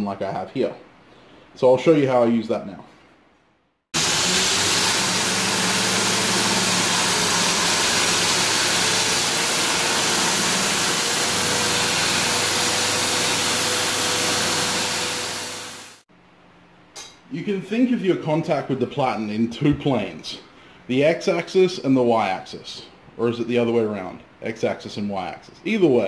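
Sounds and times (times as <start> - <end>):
belt grinder grinding steel: 4.0 - 16.0.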